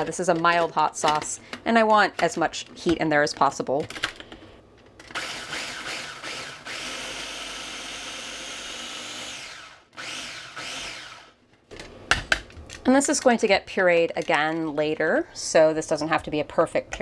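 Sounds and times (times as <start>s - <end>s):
food processor chopping: 5.1s - 11.3s.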